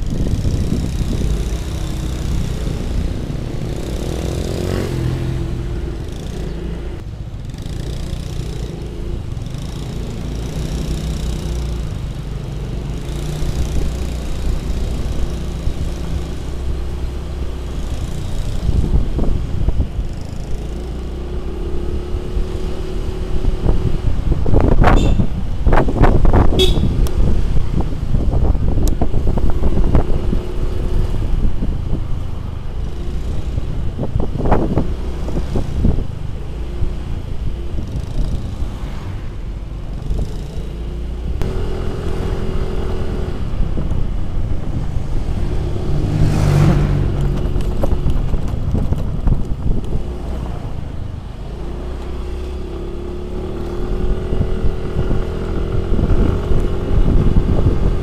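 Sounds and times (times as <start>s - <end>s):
scooter engine running: 0.0s - 22.6s, 31.3s - 39.0s
wind rushing over microphone: 0.0s - 58.0s.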